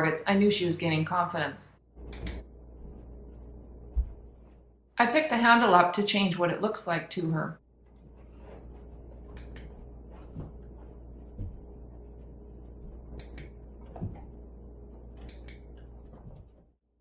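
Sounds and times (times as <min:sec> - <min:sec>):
steady low hum: 0:00.0 - 0:05.1, 0:07.6 - 0:16.7
clicker double clicks: 0:02.1 - 0:02.5.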